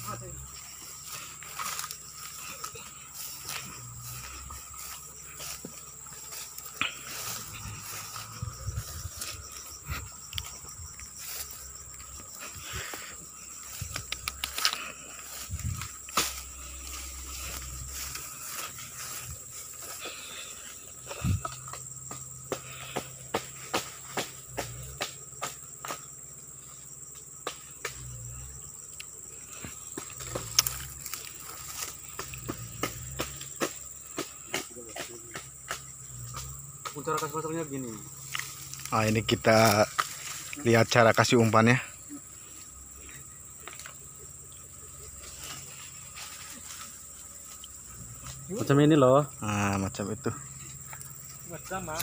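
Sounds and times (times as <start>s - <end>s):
footsteps through tall grass: 0.0s - 23.0s, 29.7s - 33.9s, 45.0s - 48.4s
insects droning: 0.0s - 52.0s
twigs snapping: 13.7s - 16.4s, 30.1s - 33.0s
sharp clicks and crackles: 13.9s - 14.9s.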